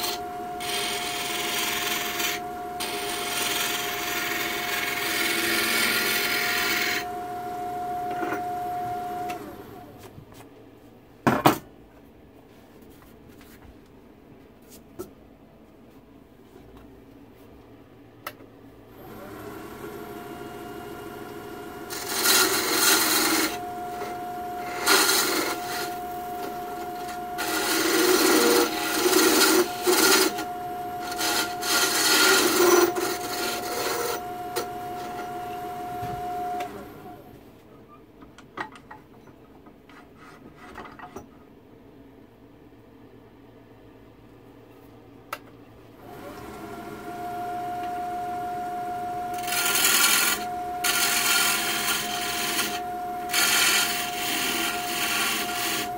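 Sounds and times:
tool scraping spinning wood: 0.0s - 7.1s, 21.7s - 36.8s, 49.2s - 55.9s
lathe motor whine: 0.0s - 10.0s, 19.0s - 37.4s, 46.0s - 55.9s.

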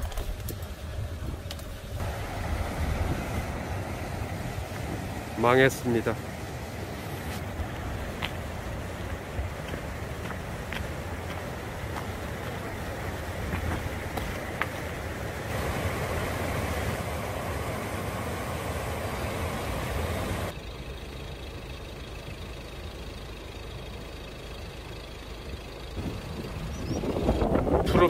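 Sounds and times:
low steady rumble: 0.0s - 28.0s
water rushing over weir: 2.0s - 20.5s.

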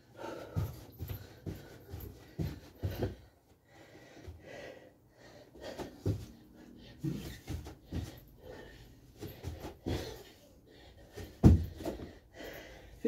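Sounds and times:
heavy breathing: 0.0s - 13.0s
feet thudding on floor: 0.4s - 3.3s, 11.1s - 12.2s.

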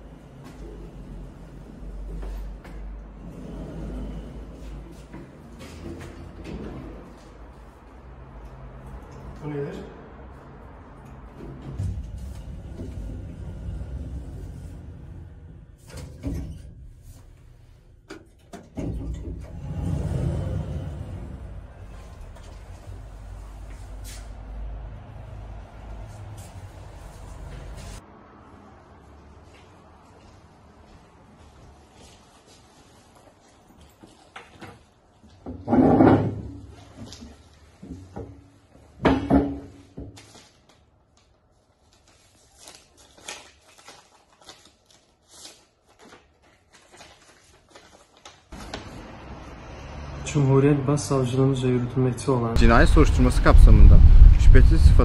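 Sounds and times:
elevator doors sliding shut: 11.5s - 17.0s, 18.6s - 24.2s
paper rustling: 40.1s - 49.0s
steady low hum: 52.6s - 55.0s.

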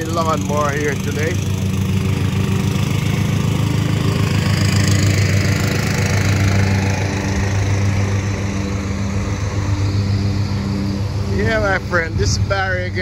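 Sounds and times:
lawnmower engine running: 0.0s - 13.0s.

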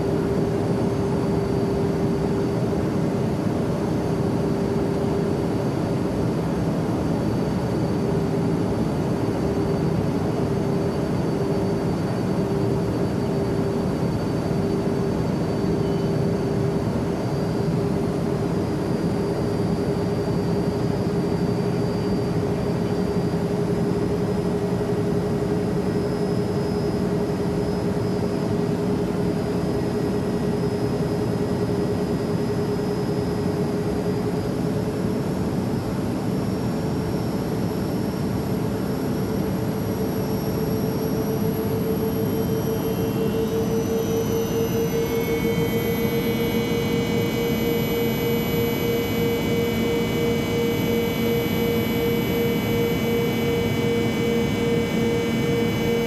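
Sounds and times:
jet engine drone: 0.0s - 56.0s
higher whines: 41.4s - 56.0s.

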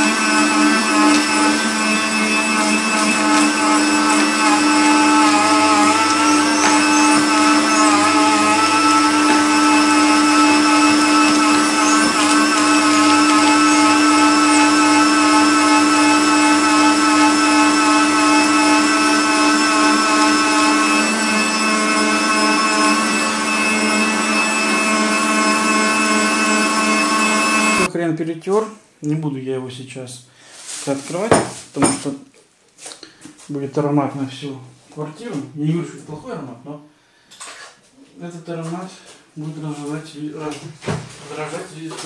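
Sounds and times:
meat grinder motor whining: 0.0s - 27.9s.

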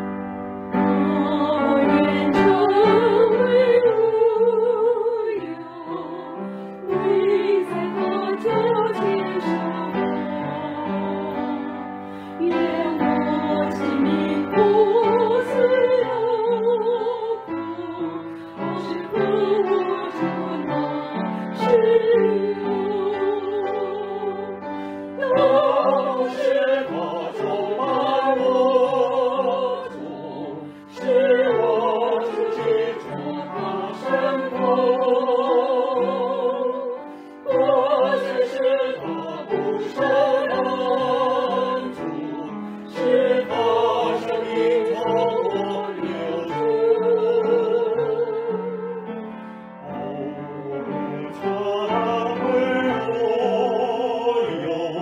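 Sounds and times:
person singing with vibrato: 0.9s - 49.0s
singer breathing: 6.4s - 6.8s, 12.0s - 12.4s, 24.7s - 25.2s.

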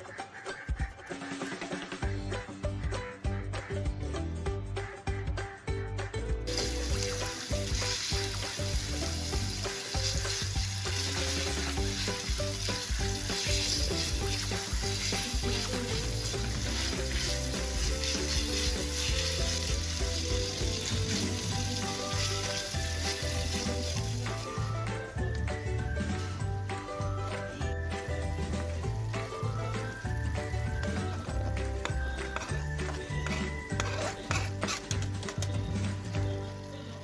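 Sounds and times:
light background music: 0.0s - 37.0s
spatula stirring in a pan: 6.5s - 24.6s, 31.8s - 35.4s
meat sizzling in a pan: 6.5s - 37.0s.

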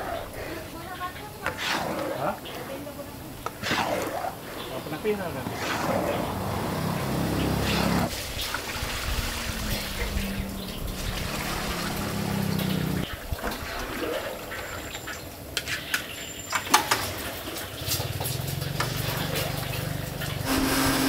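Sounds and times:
frying paste sizzling: 8.1s - 13.1s
water pouring into wok: 8.1s - 14.2s.

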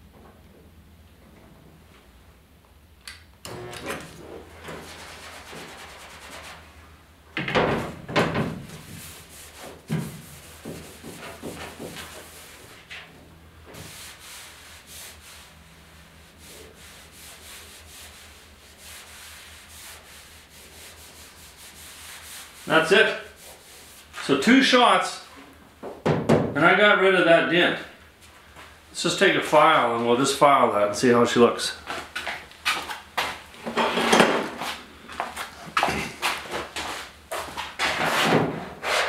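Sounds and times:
paper towel wiping metal: 4.7s - 6.7s, 13.8s - 24.3s.

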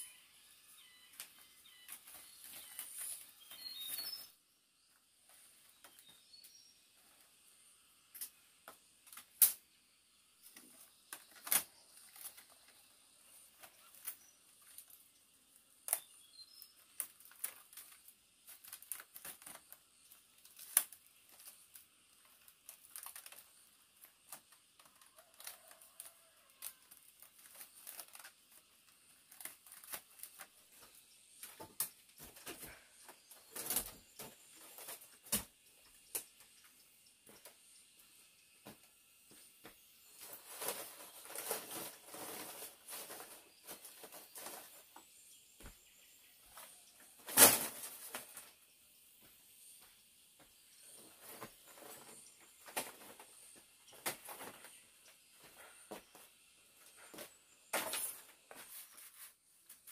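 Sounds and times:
small birds chirping: 0.0s - 8.9s, 9.7s - 47.2s.

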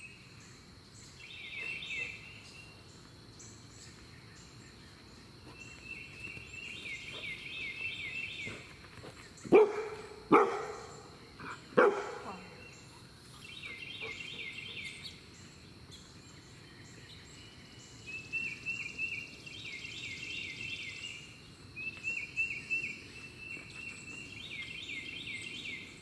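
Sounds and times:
puppy barking: 9.5s - 10.9s, 11.8s - 12.4s.

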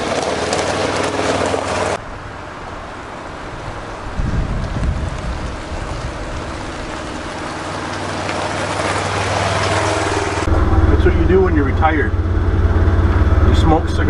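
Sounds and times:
utility vehicle engine running: 0.0s - 14.0s.

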